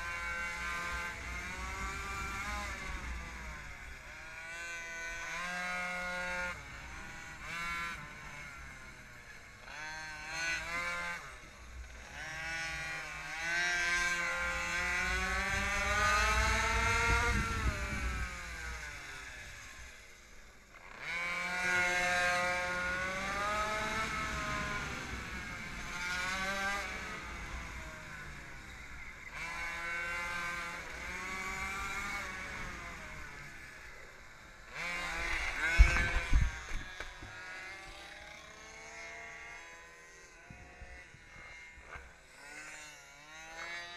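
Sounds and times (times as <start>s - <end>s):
small two-stroke engine revving: 0.0s - 43.9s
wind rumble on microphone: 15.0s - 18.9s, 35.3s - 36.9s.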